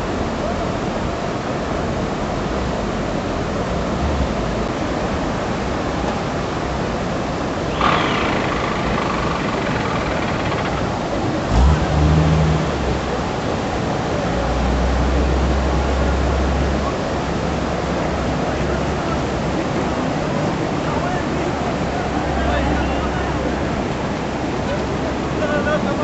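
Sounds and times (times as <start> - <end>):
floodwater rushing: 0.0 - 26.0.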